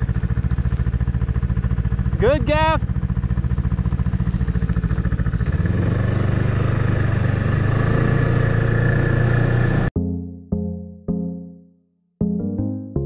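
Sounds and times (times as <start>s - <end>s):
snowmobile engine running: 0.0s - 9.9s.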